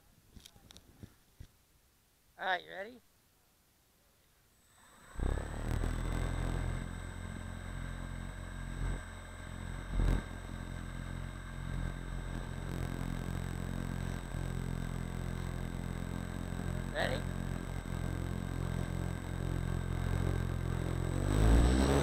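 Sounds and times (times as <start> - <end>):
noisy rush over microphone: 4.7 - 22.0
small vehicle motor running: 4.7 - 22.0.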